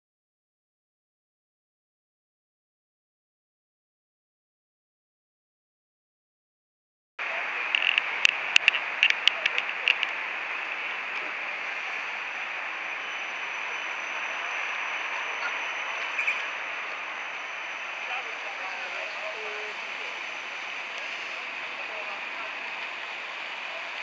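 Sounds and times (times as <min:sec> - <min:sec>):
tram rushing along track: 0:07.2 - 0:24.0
sharp clicks: 0:07.7 - 0:10.2.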